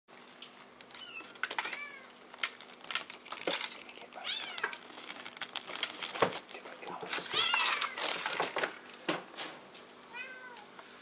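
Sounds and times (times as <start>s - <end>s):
kittens mewing: 4.0s - 5.0s, 6.8s - 8.2s.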